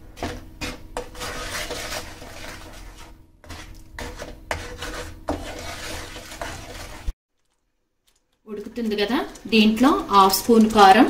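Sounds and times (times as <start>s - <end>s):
wooden spatula scraping pan: 0.0s - 7.2s.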